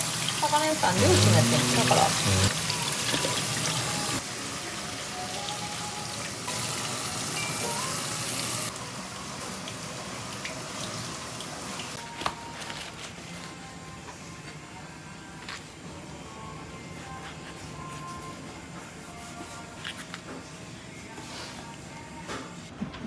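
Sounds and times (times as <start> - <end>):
tap water running into sink: 0.0 - 4.2.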